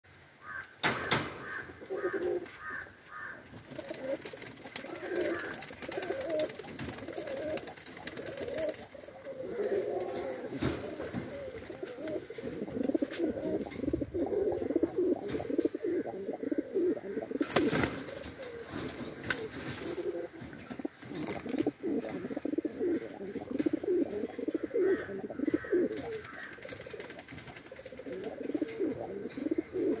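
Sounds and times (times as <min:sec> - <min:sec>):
pigeons cooing: 0:00.5 - 0:30.0.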